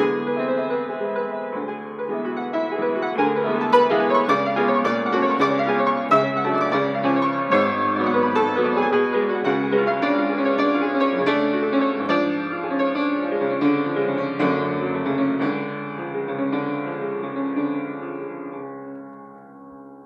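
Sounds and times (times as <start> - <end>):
solo classical piano: 0.0 - 20.0.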